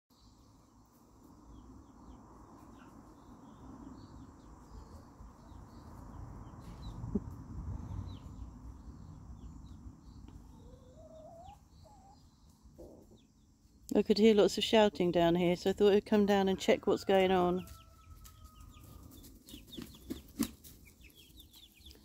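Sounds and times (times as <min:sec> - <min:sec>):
chicks cheeping: 0:00.2 - 0:22.0
steady low rumble: 0:01.5 - 0:10.4.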